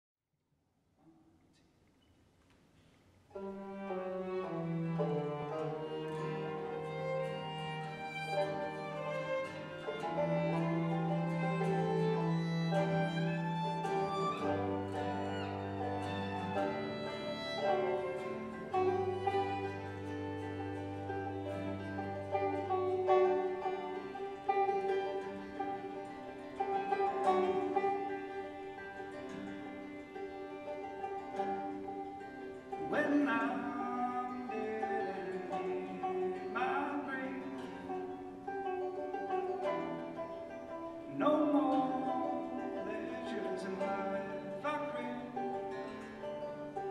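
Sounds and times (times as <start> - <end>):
banjo picking: 2.8 - 46.9
bowed violin: 3.3 - 46.9
acoustic guitar picking: 3.4 - 46.9
low bass clarinet notes: 10.0 - 26.0.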